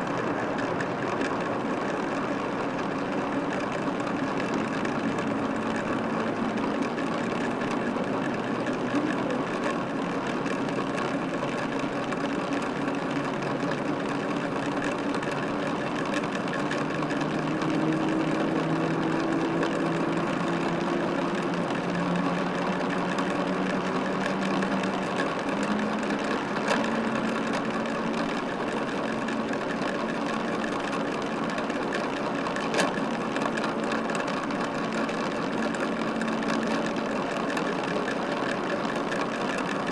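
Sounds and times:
jet airliner engines running: 0.0s - 39.9s.

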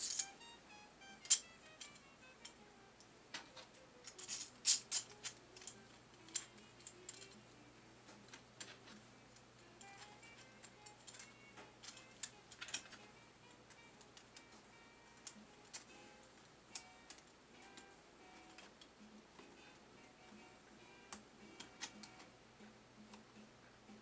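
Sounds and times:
plastic pieces clicking: 0.0s - 0.4s, 1.1s - 2.7s, 3.3s - 16.0s, 16.7s - 18.9s, 21.1s - 22.3s.

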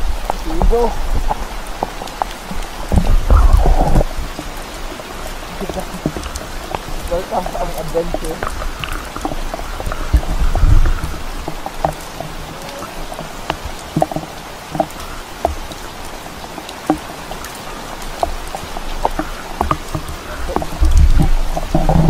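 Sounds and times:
steady rain falling: 0.0s - 22.0s
drops ticking near microphone: 0.2s - 22.0s
low rumble: 7.8s - 11.7s.

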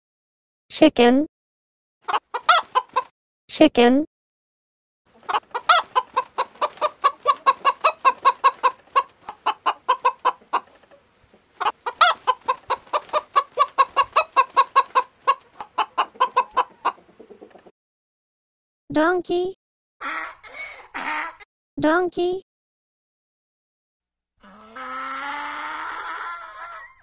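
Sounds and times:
chickens clucking: 2.1s - 3.1s, 5.1s - 17.7s, 20.0s - 21.4s.

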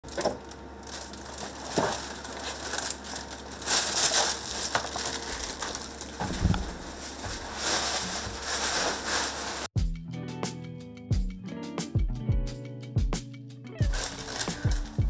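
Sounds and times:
plastic bag rustling: 0.0s - 9.7s, 13.8s - 15.0s.

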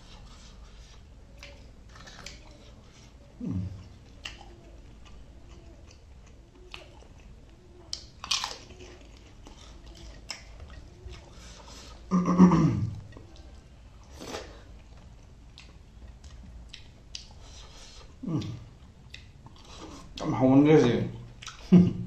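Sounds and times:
person chewing food: 0.0s - 22.0s
person humming: 3.4s - 3.8s, 18.2s - 18.6s
crunchy bite: 7.9s - 10.5s.

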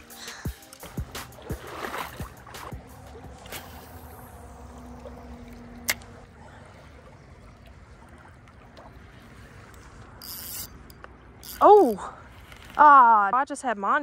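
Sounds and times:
river water trickling and lapping: 0.0s - 13.3s.

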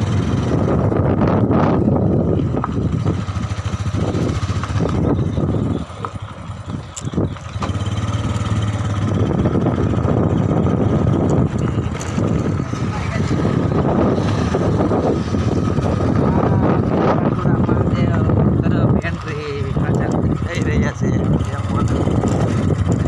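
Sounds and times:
small vehicle engine running: 0.0s - 23.0s
wind rumble on microphone: 0.0s - 23.0s.

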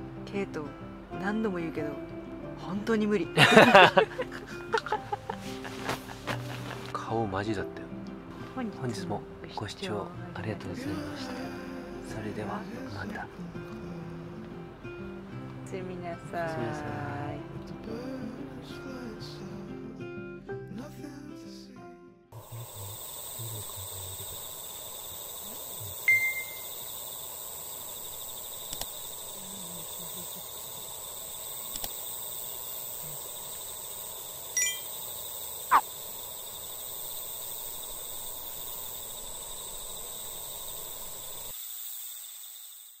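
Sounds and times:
insect chorus trilling: 3.4s - 6.9s, 22.4s - 43.0s
short chirps: 26.0s - 26.8s, 34.6s - 35.0s
faint clicks: 28.6s - 29.2s, 31.6s - 32.1s.

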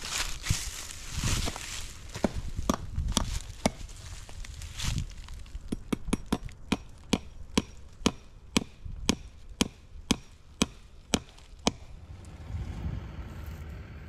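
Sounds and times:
hatchet hammering staple into wood: 2.2s - 3.8s, 5.7s - 11.9s.

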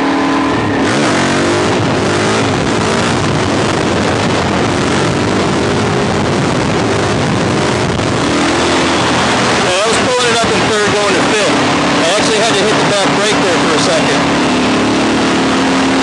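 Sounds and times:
wind rushing: 0.0s - 13.0s
motorcycle engine running: 0.0s - 16.0s.

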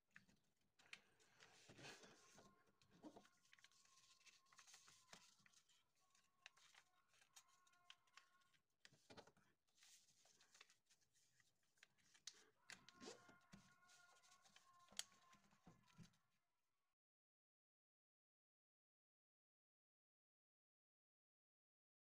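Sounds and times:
paper rustling and creasing: 0.9s - 9.1s, 9.7s - 16.1s.

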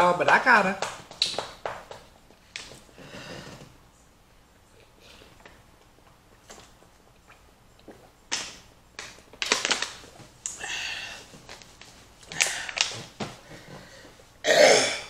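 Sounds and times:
woman coughing: 14.5s - 15.0s.

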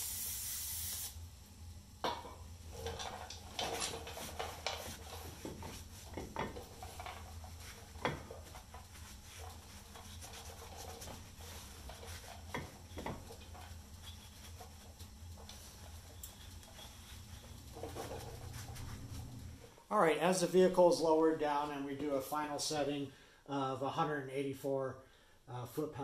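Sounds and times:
rag wiping brake rotor: 4.1s - 19.2s.

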